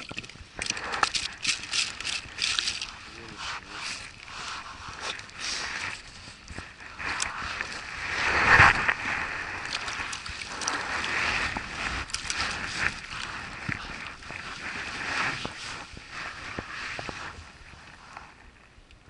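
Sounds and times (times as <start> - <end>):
fish thrashing at surface: 7.5 - 15.6.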